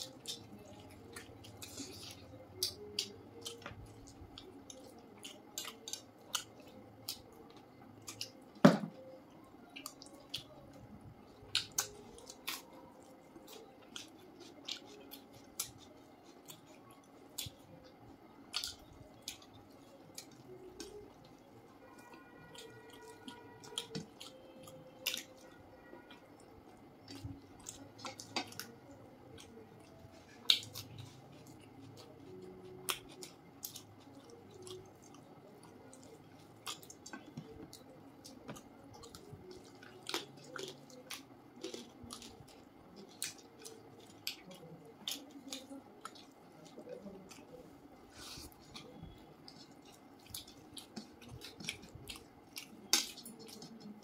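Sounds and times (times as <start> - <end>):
chewing: 0.0 - 54.0
wet squishing of food mixed by hand: 20.1 - 54.0.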